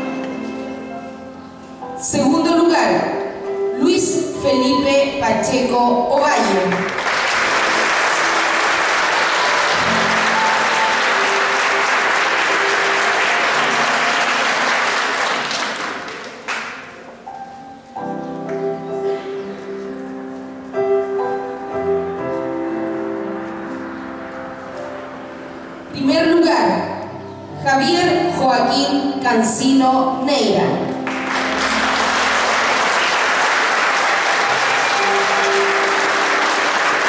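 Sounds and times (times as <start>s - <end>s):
background music: 0.0s - 37.0s
audience applauding: 6.5s - 17.0s, 31.0s - 37.0s.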